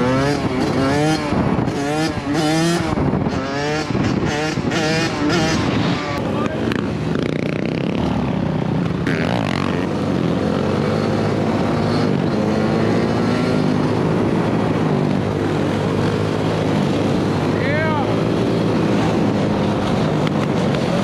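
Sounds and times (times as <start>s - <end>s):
quad engine: 0.0s - 21.0s.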